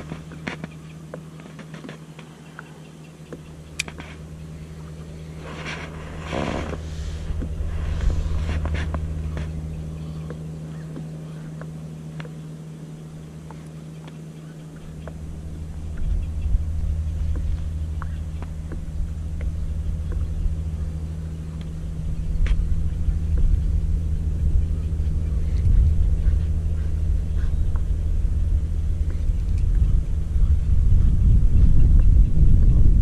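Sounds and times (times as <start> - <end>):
light clicks: 0.0 - 4.2
boat motor humming: 0.0 - 33.0
rush of noise: 0.0 - 33.0.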